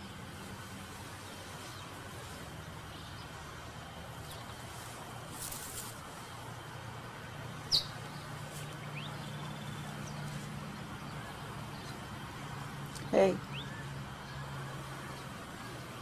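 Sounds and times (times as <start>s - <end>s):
brief rustle: 4.2s - 6.0s
bird chirp: 7.6s - 16.0s.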